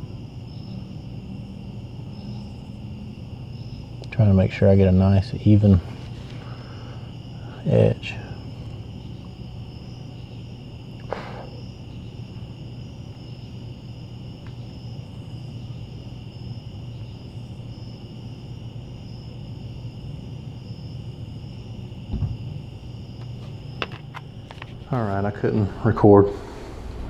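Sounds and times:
low steady hum: 0.0s - 27.0s
night insects chirping: 0.0s - 27.0s
brief knock: 22.1s - 22.4s
low thump: 22.1s - 22.5s.

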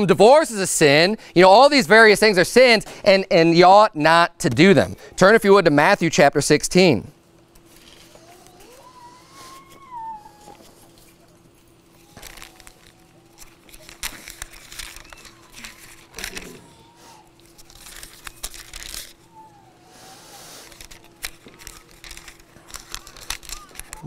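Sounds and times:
thin pages rustling: 10.3s - 16.6s, 17.4s - 19.2s, 20.6s - 24.0s.

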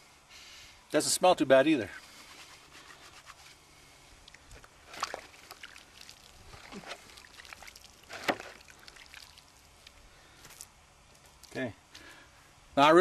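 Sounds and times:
wet lathered hands rubbing: 2.1s - 3.6s
dripping water: 4.2s - 10.0s
loud wet squelches: 4.3s - 10.0s.

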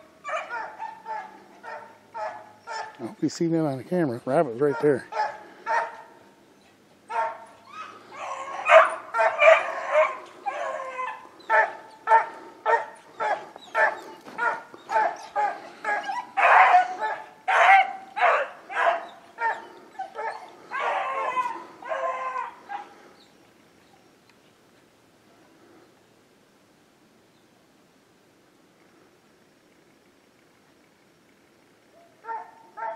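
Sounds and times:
beagles baying: 0.0s - 3.2s, 4.2s - 24.2s, 31.9s - 32.9s.

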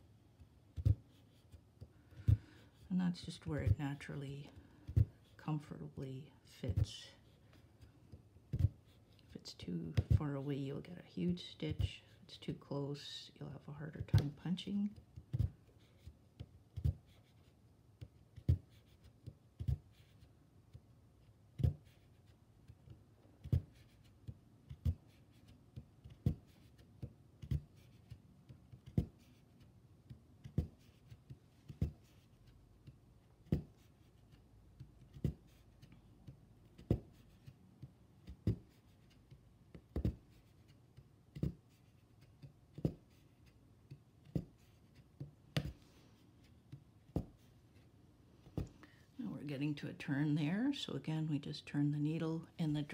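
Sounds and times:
needle scratching fabric: 13.9s - 17.6s.

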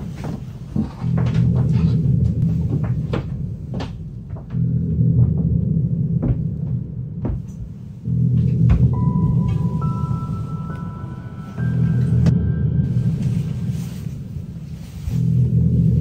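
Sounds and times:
hollow knocks and creaks: 0.0s - 9.6s
low rumble: 0.0s - 16.0s.

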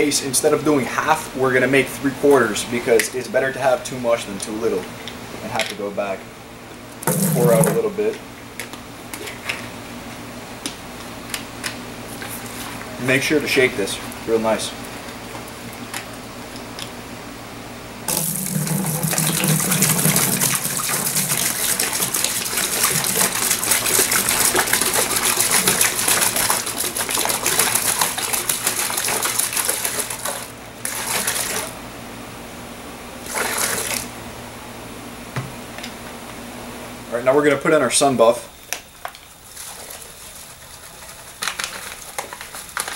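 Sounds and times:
liquid pouring into a bucket: 7.1s - 8.0s, 18.1s - 31.8s, 33.2s - 34.1s, 39.4s - 42.9s.

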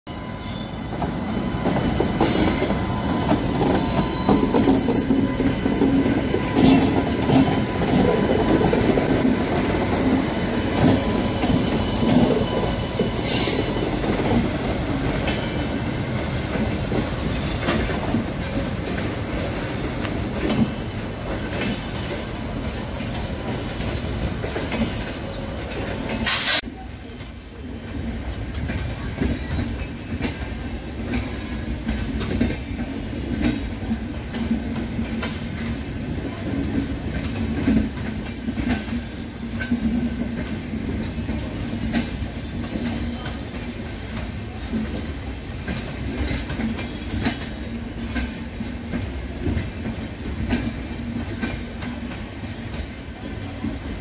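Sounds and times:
wheel squeal: 0.1s - 5.4s
train passing rumble: 0.8s - 54.0s
wheels clacking over rail joints: 28.3s - 54.0s.

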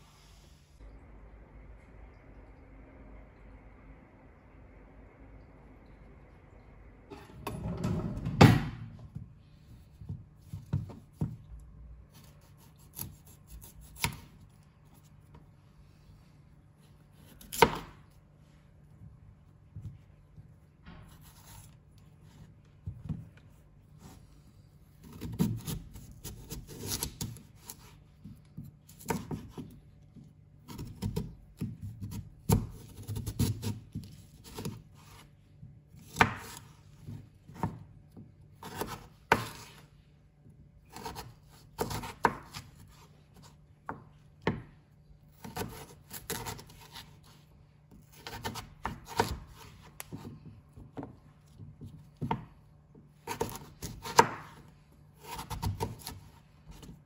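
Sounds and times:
knife rubbing through potato: 12.1s - 14.2s, 38.6s - 39.9s, 45.4s - 50.3s.

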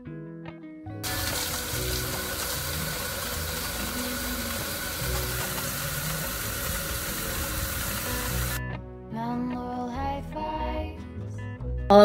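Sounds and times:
shower water spraying: 1.0s - 8.6s.

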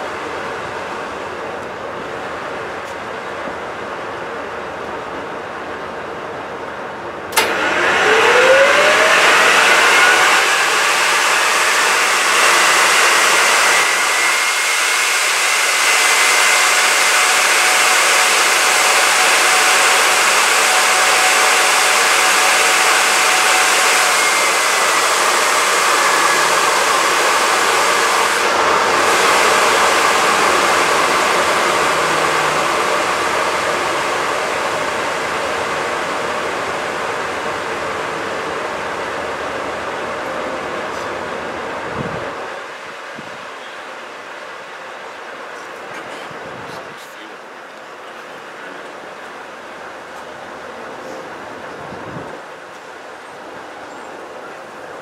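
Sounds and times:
jet engine whine: 0.0s - 55.0s
jet engine roaring: 7.3s - 44.8s.

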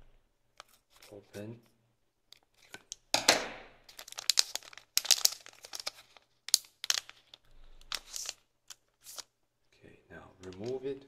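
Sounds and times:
plastic bag crinkling: 3.8s - 9.2s
plastic bag ripping: 3.8s - 9.2s.

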